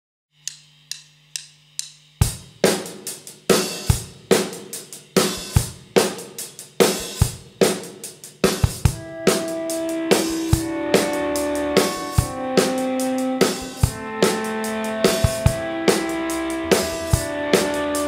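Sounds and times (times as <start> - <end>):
drum kit playing a steady beat: 1.7 - 18.0
crashing cymbals: 8.1 - 18.0
bass drum: 15.2 - 18.0.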